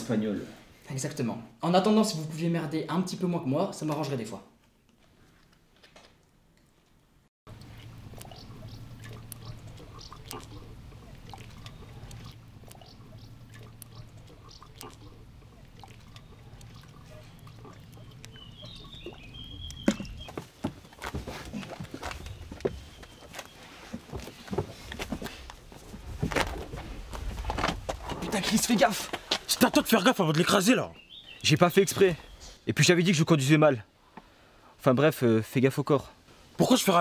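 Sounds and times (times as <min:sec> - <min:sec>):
low hum: 0:07.5 - 0:20.3
water lapping: 0:07.5 - 0:29.6.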